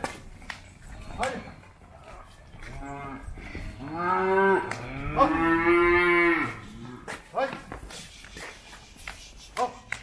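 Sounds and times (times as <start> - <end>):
calves mooing: 2.7 - 7.1.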